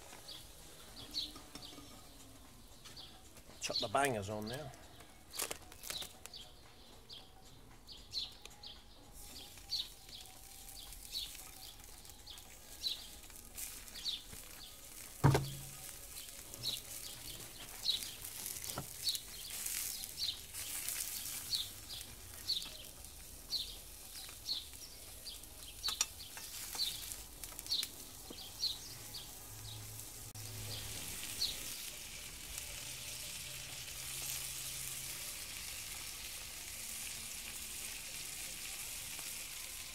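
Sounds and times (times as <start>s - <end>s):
bird chirping: 0.2s - 13.2s, 13.8s - 29.9s
sausages sizzling in a frying pan: 9.2s - 39.9s
sharp knock: 15.2s - 15.7s.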